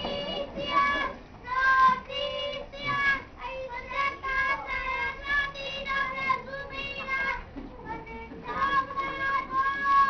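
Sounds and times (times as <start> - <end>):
young child singing: 0.0 - 10.0.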